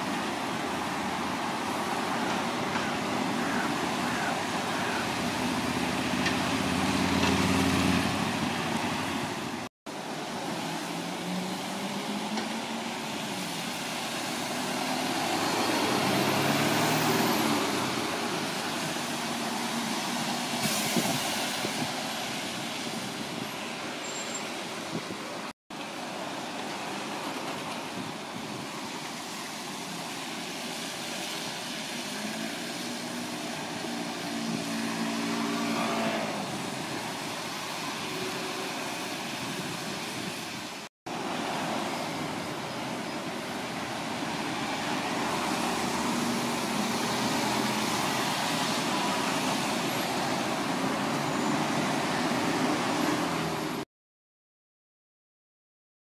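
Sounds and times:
road traffic: 0.0s - 53.9s
vehicle pulling away: 4.6s - 9.4s, 10.3s - 24.7s.

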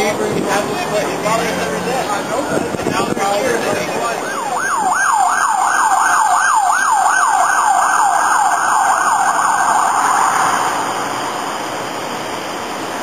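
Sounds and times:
siren yelping: 3.6s - 11.2s.

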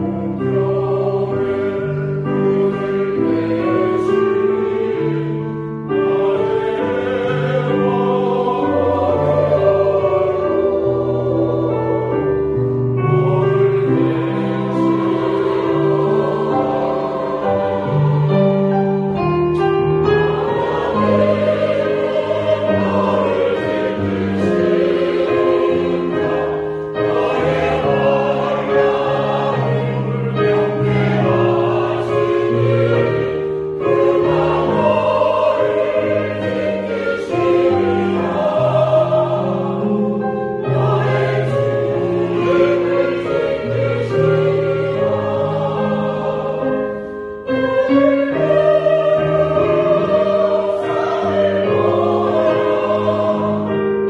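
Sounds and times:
choir accompaniment: 0.0s - 54.0s
mixed choir singing: 0.0s - 54.0s.

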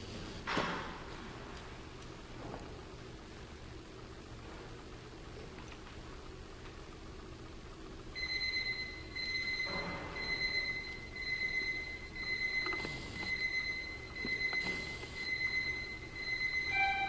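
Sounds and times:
high-pitched electronic drone tone: 12.6s - 17.0s.

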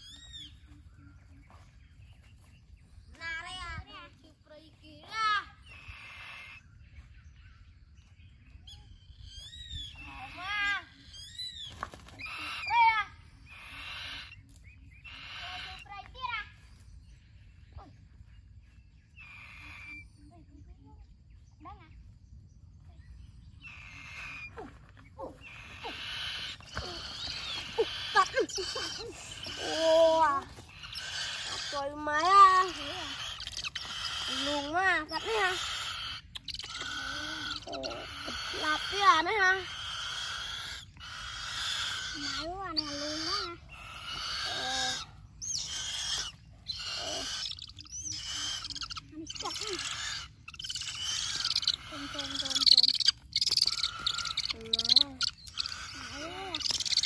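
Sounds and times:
young birds of prey calling: 0.0s - 20.6s, 21.2s - 57.0s.

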